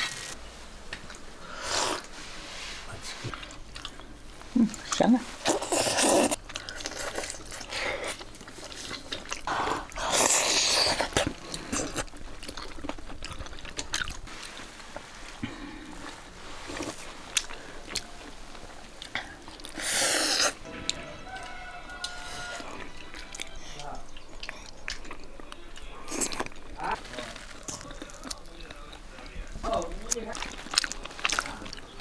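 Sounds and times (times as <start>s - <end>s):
people chewing: 0.0s - 32.0s
loud slurps: 19.7s - 20.6s.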